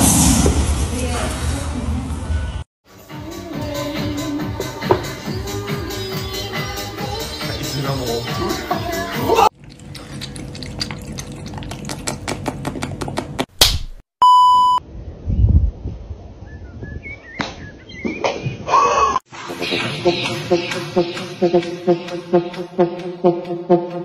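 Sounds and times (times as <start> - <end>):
music: 2.8 - 9.5, 19.3 - 24.0
electronic beep: 14.2 - 14.8.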